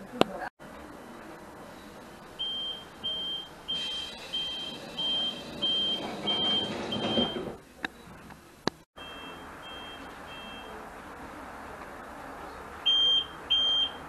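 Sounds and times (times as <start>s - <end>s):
sliding doors closing: 0.9s - 8.4s
short high warning beeps: 2.4s - 7.4s, 9.0s - 10.7s.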